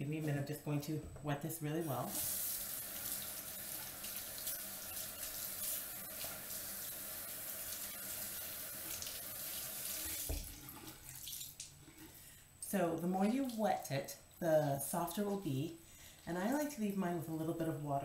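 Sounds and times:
tap water running into sink: 2.1 - 11.7.

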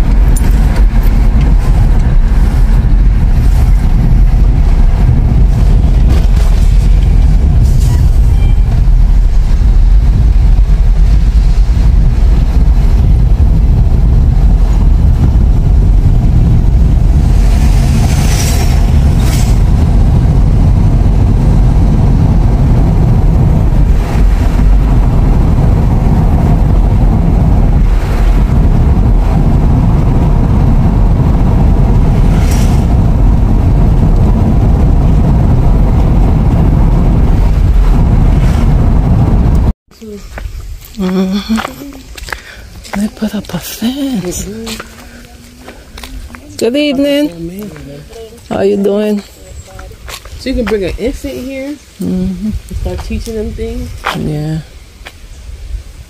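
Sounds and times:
passing traffic rushing by: 0.0 - 39.5
car road noise rumble: 0.0 - 56.0.

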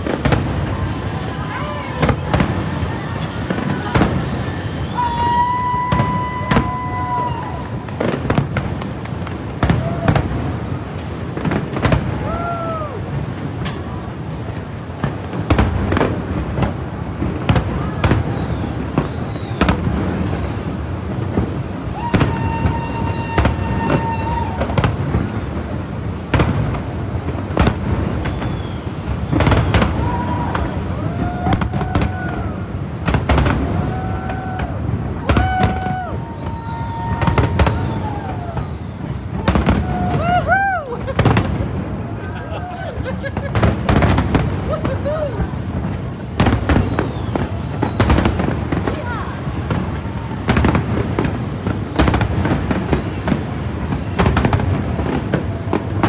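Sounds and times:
fireworks bangs and crackles: 0.0 - 56.0
short whistling tones: 4.4 - 5.5, 18.2 - 19.8, 28.2 - 29.8, 46.7 - 48.2.

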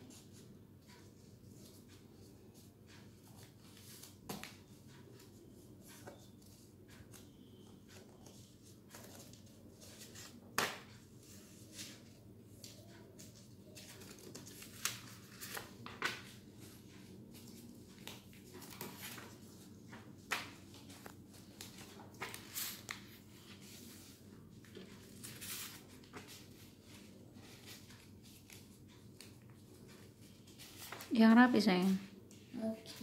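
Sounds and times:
paper rustling and tapping: 0.2 - 31.3.

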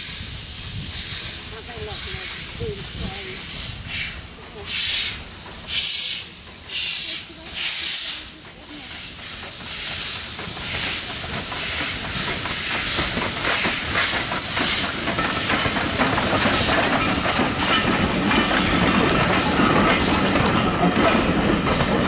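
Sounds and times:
hissing steam: 0.0 - 22.0
steam locomotive passing: 0.0 - 22.0
train wheels clattering on rail joints: 0.7 - 22.0.

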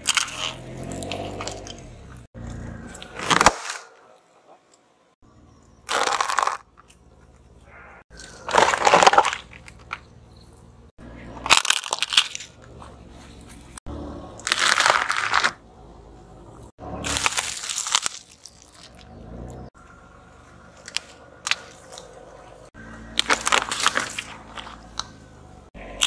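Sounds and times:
tyre crushing brittle objects: 0.0 - 1.9, 2.8 - 4.1, 5.8 - 7.3, 8.1 - 10.5, 11.3 - 13.8, 14.4 - 15.6, 16.8 - 19.6, 20.8 - 22.2, 22.8 - 25.3
low car rumble: 0.0 - 3.3, 4.4 - 26.0.

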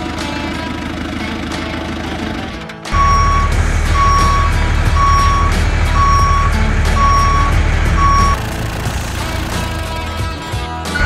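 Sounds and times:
low engine rumble: 0.0 - 10.5
truck reversing alarm beeping: 3.0 - 10.1.

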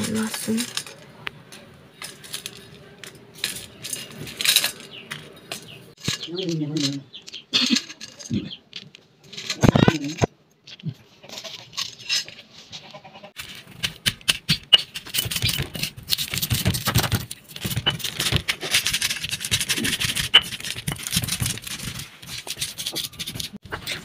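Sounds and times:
stone roller grinding and scraping: 0.0 - 10.3, 11.2 - 24.0
sharp cracks of chillies crushing: 13.4 - 23.6.

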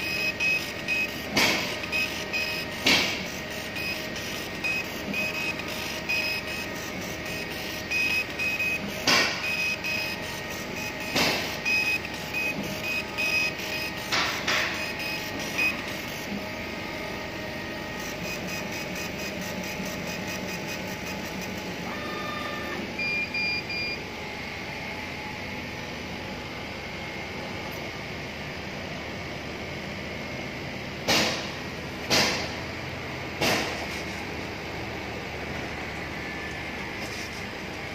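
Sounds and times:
machine beeps: 0.0 - 16.4, 17.5 - 24.1.

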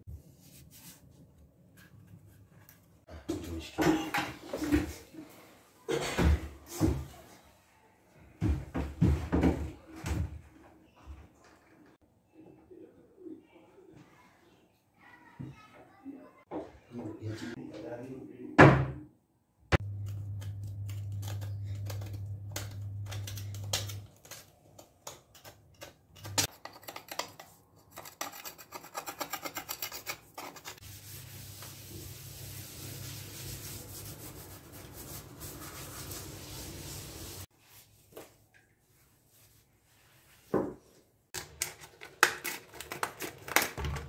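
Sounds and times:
cloth scrubbing hard surfaces: 30.8 - 40.5.

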